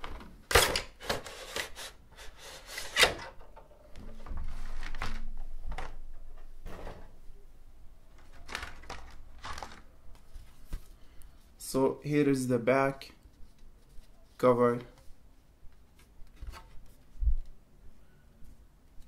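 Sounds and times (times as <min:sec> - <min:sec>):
plastic packaging rustling: 0:04.0 - 0:06.0, 0:08.1 - 0:11.1.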